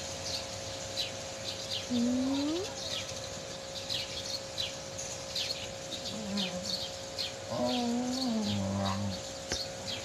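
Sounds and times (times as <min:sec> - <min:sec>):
small bird chirping: 0:00.0 - 0:10.0
person humming: 0:01.9 - 0:02.7, 0:06.1 - 0:06.8, 0:07.5 - 0:09.2.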